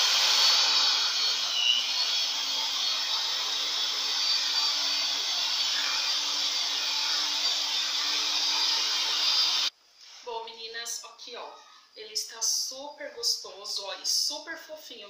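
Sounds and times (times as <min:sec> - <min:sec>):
electric hand mixer running: 0:00.0 - 0:09.7.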